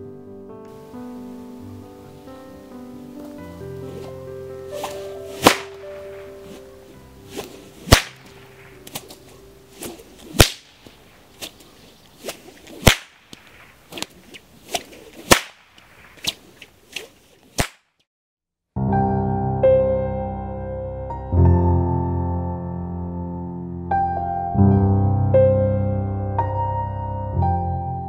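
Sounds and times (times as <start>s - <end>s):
whip cracking: 4.7s - 6.7s, 7.3s - 18.0s.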